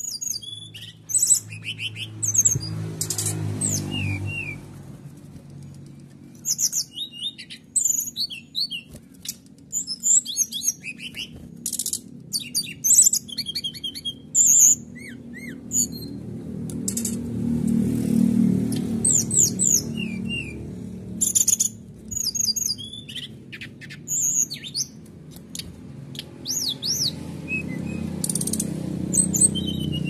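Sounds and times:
bird singing whistles and trills: 0.0s - 4.6s, 6.4s - 16.2s, 19.0s - 20.6s, 21.2s - 25.0s, 26.2s - 30.0s.

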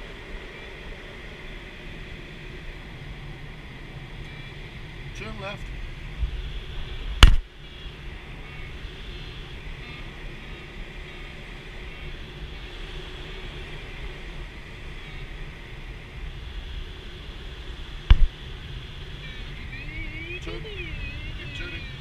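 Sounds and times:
airflow rushing over glider canopy: 0.0s - 22.0s
sharp knocks: 18.1s - 18.3s.

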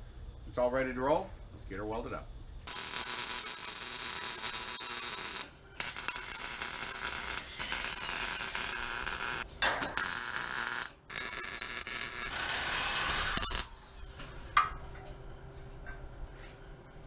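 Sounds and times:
wire-feed welder arc: 2.7s - 13.9s.

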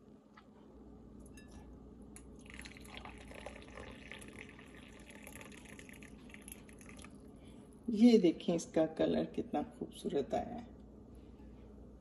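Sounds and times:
tea trickling into glass cup: 2.4s - 7.2s.

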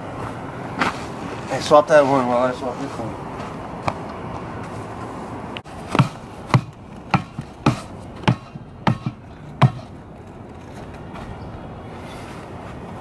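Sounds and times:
foot kicking tires: 3.3s - 11.6s.

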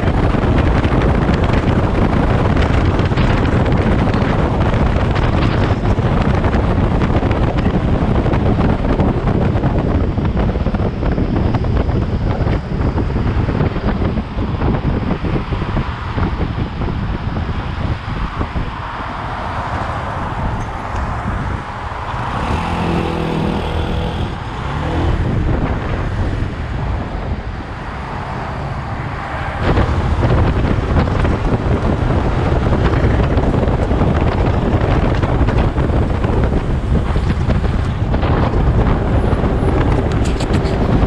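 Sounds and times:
wind buffeting microphone: 0.0s - 41.0s
motorcycle engine running: 21.4s - 26.0s.

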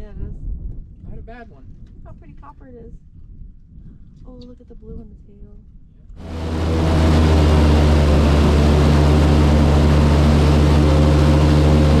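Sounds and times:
airboat engine and propeller: 6.2s - 12.0s.

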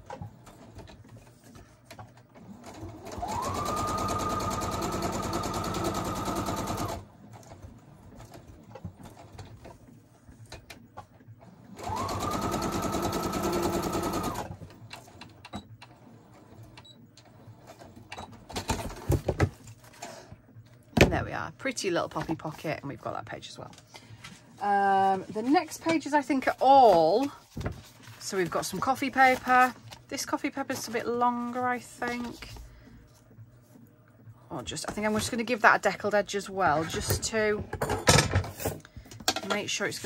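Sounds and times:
sewing machine stitching: 2.1s - 9.7s, 11.5s - 17.0s
paper rustling: 25.0s - 30.0s.

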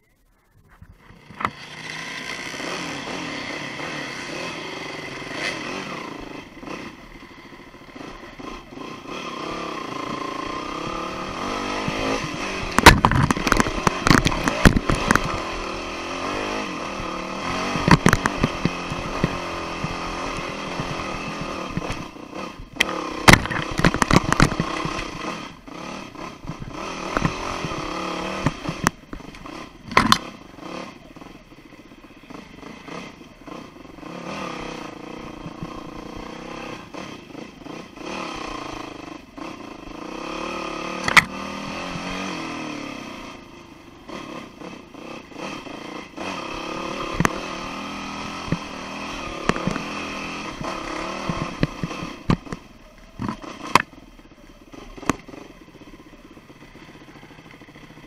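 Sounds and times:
dirt bike engine revving: 1.0s - 58.0s
bike knocking on rocks: 12.7s - 15.4s.

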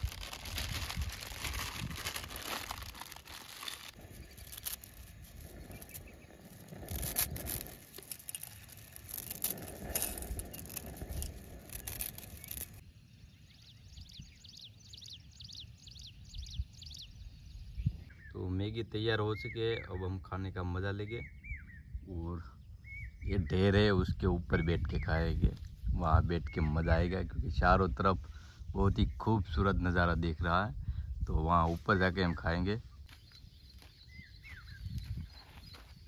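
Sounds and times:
dry noodles crunching: 0.0s - 12.8s
plastic packet crinkling: 0.0s - 12.8s
bird chirping rapidly: 1.7s - 7.8s.

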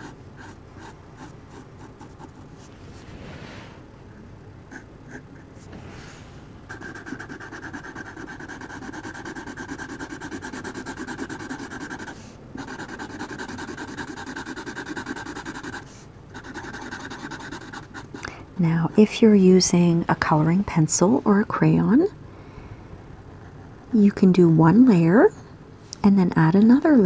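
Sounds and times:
marker scratching on paper: 0.0s - 2.7s, 4.7s - 5.7s, 6.7s - 18.2s.

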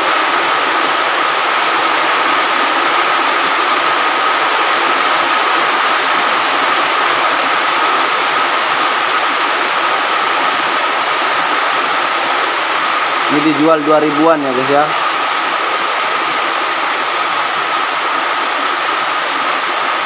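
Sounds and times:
steady high tone: 13.3s - 19.5s.

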